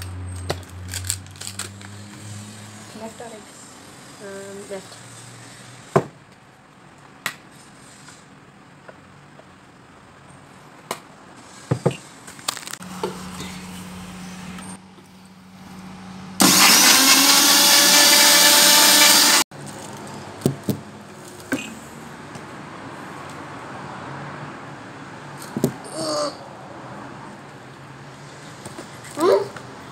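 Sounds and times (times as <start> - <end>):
mixer grinder blending liquid: 16.4 - 19.4.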